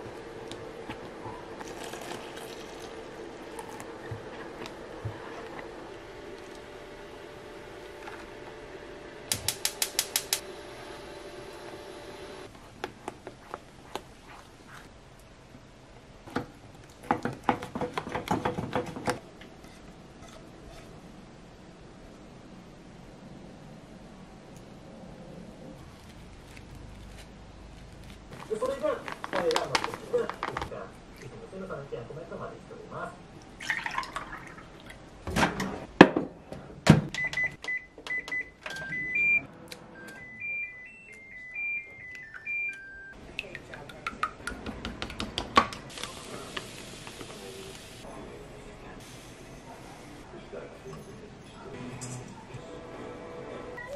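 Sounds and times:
milk pouring into a mug: 1.6s - 3.9s.

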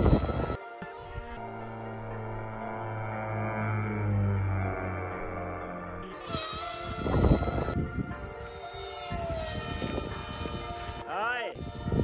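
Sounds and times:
wind noise on microphone: 0.0s - 1.4s, 6.2s - 12.0s
buzzing whine of propeller motor: 0.0s - 12.0s.

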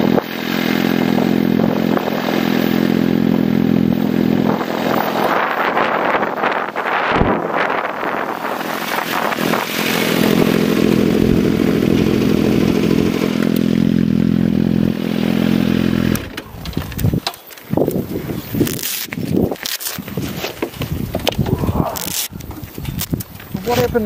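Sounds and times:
motorcycle engine idling: 0.8s - 5.0s, 9.1s - 18.4s.

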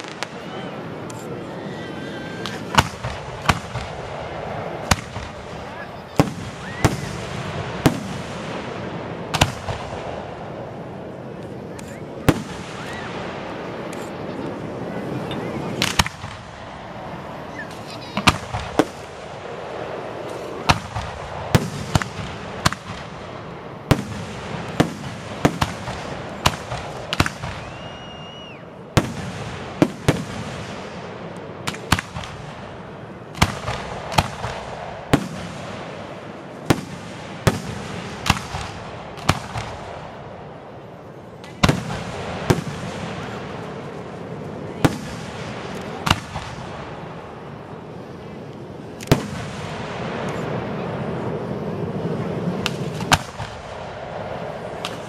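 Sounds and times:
firework bangs: 0.0s - 1.5s, 2.3s - 55.0s
high whistle: 27.5s - 28.7s.

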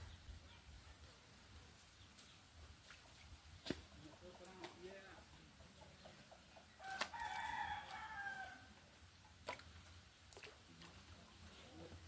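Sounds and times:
rooster crowing: 6.8s - 8.7s.

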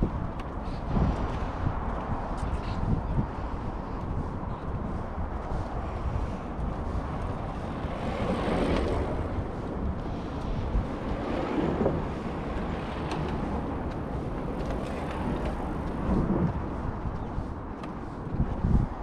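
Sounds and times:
low outdoor rumble: 0.0s - 17.7s
wind buffeting microphone: 0.0s - 19.0s.

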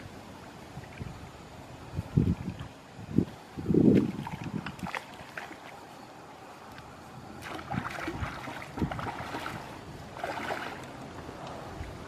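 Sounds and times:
stream water splashing: 0.0s - 12.0s.

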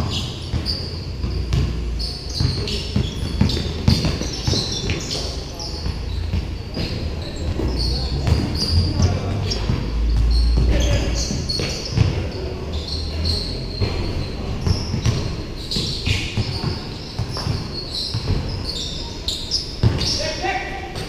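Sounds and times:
basketball bouncing on concrete: 0.0s - 5.0s, 5.8s - 12.2s, 13.8s - 18.6s, 19.8s - 20.1s.

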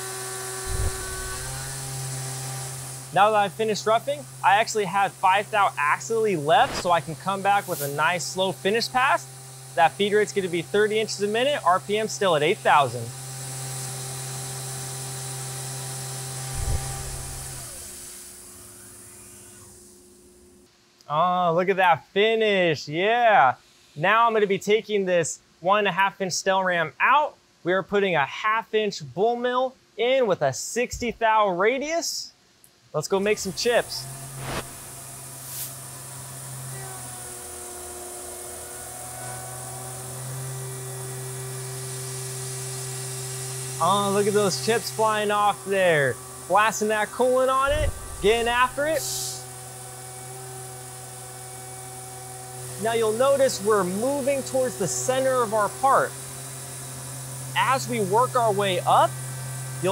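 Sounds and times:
coolant mist hissing: 0.0s - 20.2s, 33.2s - 59.9s
high whine of cutter: 0.0s - 20.7s, 33.1s - 59.9s
mill spindle hum: 0.0s - 20.7s, 33.2s - 59.9s.

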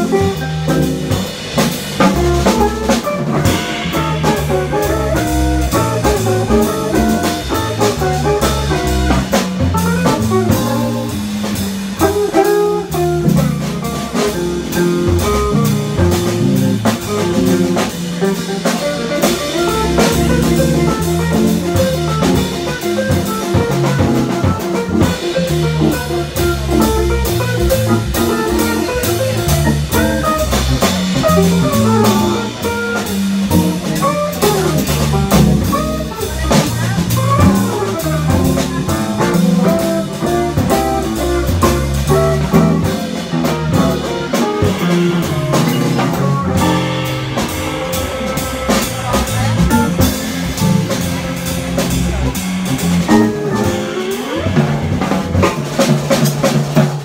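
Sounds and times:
electric guitar: 0.0s - 56.3s
drum kit: 0.0s - 57.0s
organ with bass line: 12.2s - 54.5s.

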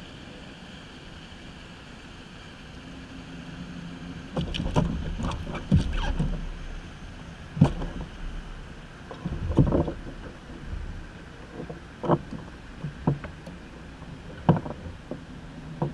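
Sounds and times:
gear knocking on plastic kayak: 9.1s - 13.6s, 14.2s - 15.9s.

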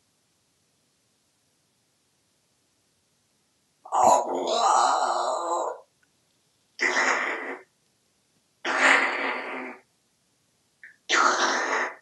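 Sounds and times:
parrot raspy vocalisations: 3.9s - 5.9s, 6.8s - 7.7s, 8.6s - 9.9s, 10.8s - 12.0s.

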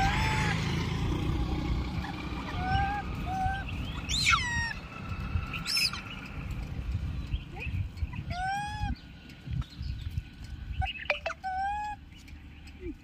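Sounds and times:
monkeys calling: 0.0s - 0.9s, 1.9s - 5.0s, 5.6s - 6.3s, 7.5s - 9.1s, 10.8s - 13.0s.

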